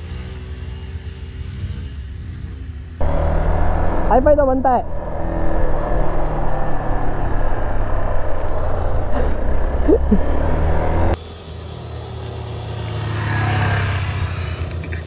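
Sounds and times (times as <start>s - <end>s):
motorcycle engine running: 0.0s - 15.0s
low hum: 3.0s - 13.0s.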